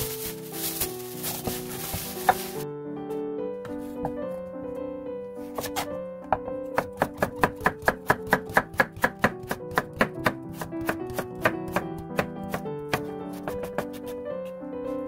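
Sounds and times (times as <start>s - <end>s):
knife chopping on wooden board: 5.5s - 5.9s, 6.8s - 14.0s.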